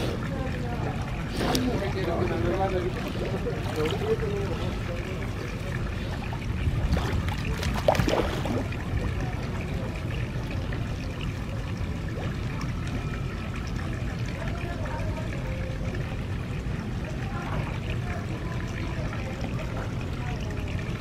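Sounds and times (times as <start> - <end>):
steady low rumble: 0.0 - 15.2
water splashing and lapping: 0.0 - 21.0.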